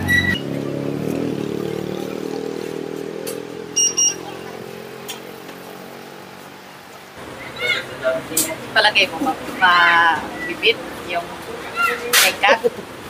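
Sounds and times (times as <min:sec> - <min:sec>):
vehicle engine passing by: 0:00.0 - 0:08.3
short high beeps: 0:03.8 - 0:04.2.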